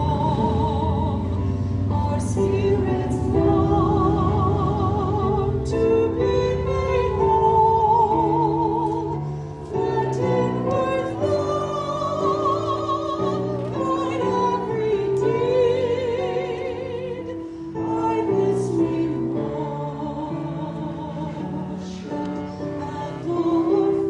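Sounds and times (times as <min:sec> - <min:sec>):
keyboard chords: 0:00.0 - 0:24.0
woman singing a hymn: 0:00.0 - 0:24.0.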